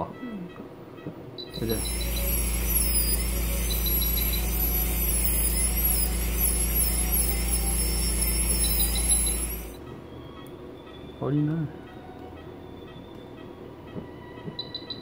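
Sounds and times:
dental drill whining: 1.5 - 9.8
low steady hum: 1.5 - 10.8.

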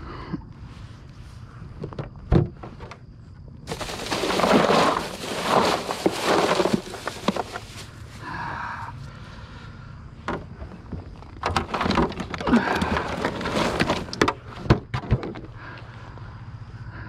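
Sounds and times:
fish scuffling in a cooler: 3.7 - 8.0, 11.4 - 14.4.

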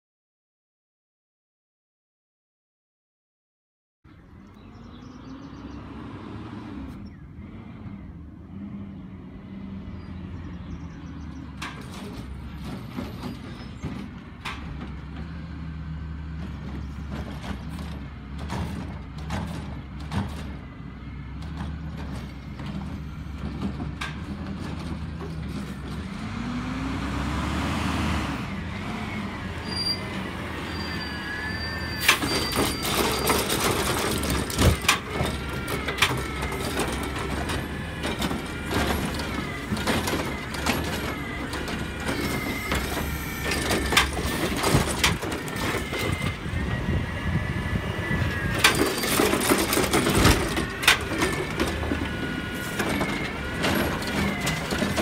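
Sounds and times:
garbage truck diesel engine: 4.1 - 55.0
trash cart clanks and thumps: 11.0 - 26.4, 31.9 - 47.5, 48.1 - 55.0
hydraulic whine: 28.4 - 55.0
air brakes hissing: 29.7 - 33.4.

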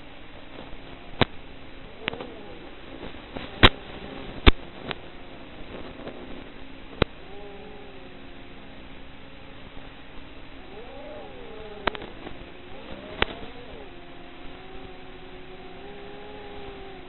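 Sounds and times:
quadcopter motors whining: 0.0 - 17.0
sharp clicks: 10.7 - 17.0.

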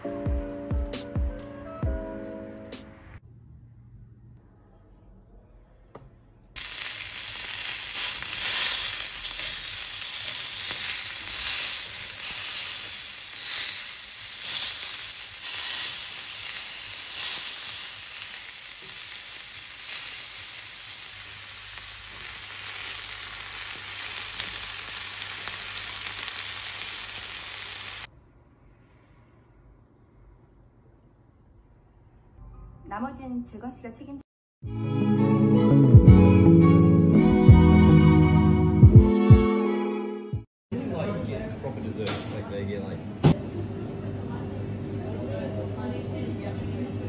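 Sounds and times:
food sizzling in a pan: 6.6 - 28.1.

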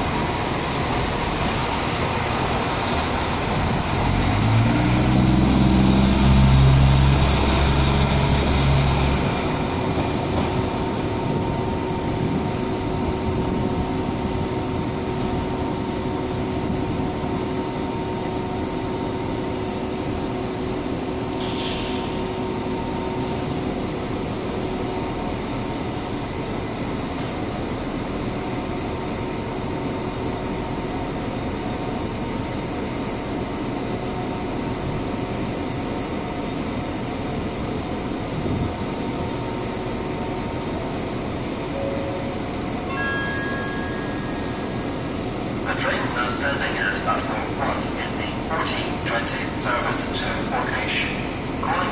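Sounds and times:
railway rumble: 0.0 - 51.9
train diesel engines running: 0.0 - 51.9
short hiss: 21.4 - 22.2.

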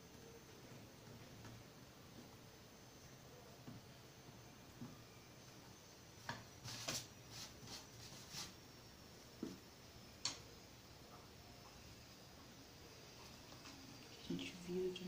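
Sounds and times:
paper rustling: 6.6 - 8.6.

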